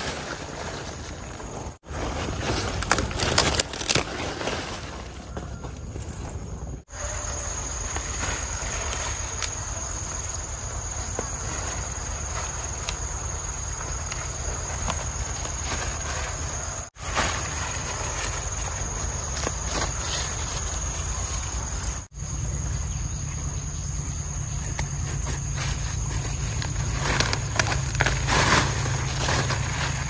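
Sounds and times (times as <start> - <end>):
leafy greens snapping: 2.6 - 4.4, 26.4 - 30.0
insects trilling: 5.9 - 30.0.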